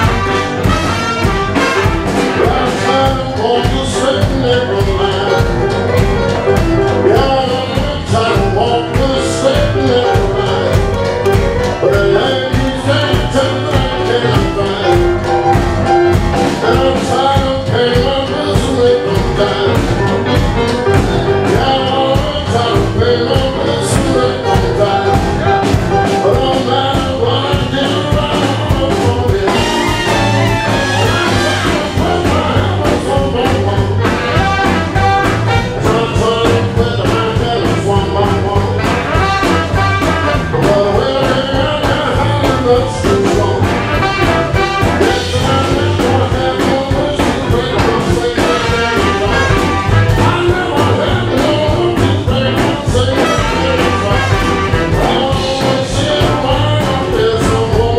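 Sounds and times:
tenor saxophone: 0.0s - 3.4s, 29.4s - 32.6s, 34.1s - 36.1s, 53.0s - 55.4s
jump-blues band playing: 0.0s - 57.9s
trumpet: 0.0s - 57.9s.

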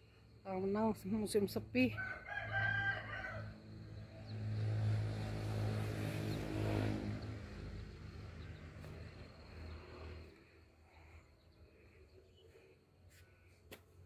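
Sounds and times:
vehicle passing by: 2.3s - 11.9s.

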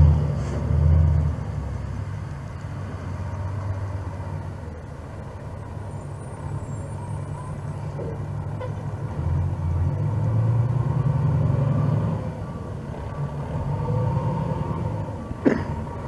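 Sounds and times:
fire truck diesel engine running: 1.2s - 10.0s.

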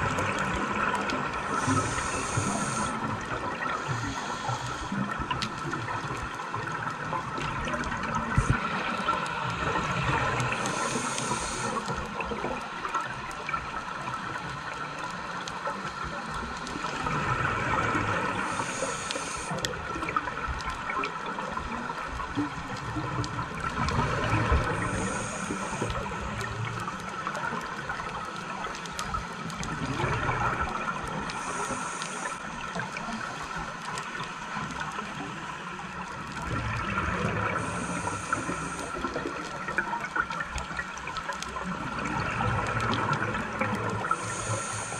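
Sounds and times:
bubbling exhales: 0.0s - 6.1s
regulator inhale hiss: 0.3s - 5.5s, 8.3s - 12.2s, 18.1s - 19.8s, 24.4s - 26.8s, 31.2s - 32.6s, 37.4s - 39.5s, 44.0s - 44.9s.

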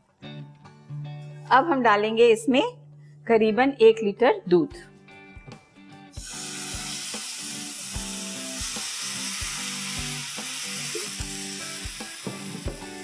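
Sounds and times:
soft background music with beat: 0.0s - 1.5s, 4.6s - 13.0s
milk sizzling in hot pan: 6.1s - 13.0s.

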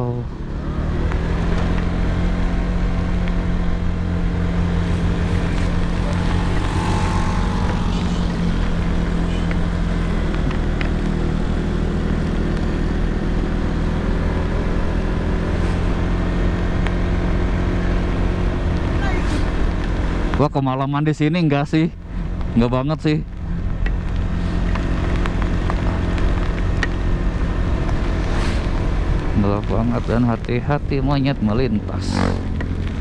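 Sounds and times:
motorcycle engine running: 0.0s - 20.5s, 22.0s - 33.0s
road noise: 0.0s - 33.0s.

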